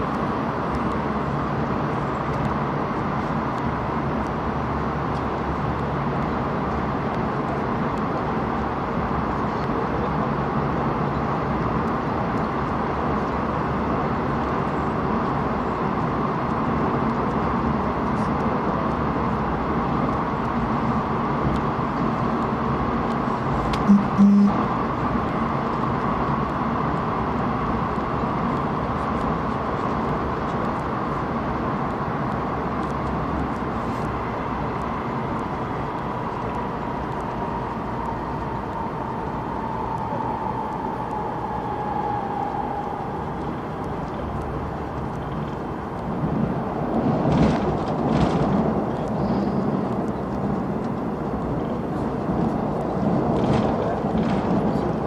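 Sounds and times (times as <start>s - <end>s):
train wheels rumbling on rail: 0.0s - 55.0s
train whine falling in pitch: 23.8s - 24.8s, 36.9s - 44.1s.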